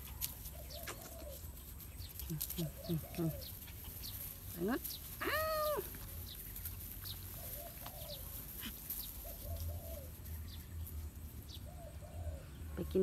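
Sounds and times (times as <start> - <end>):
low cooing bird call: 0.5 - 1.5, 7.3 - 8.4, 11.6 - 12.7.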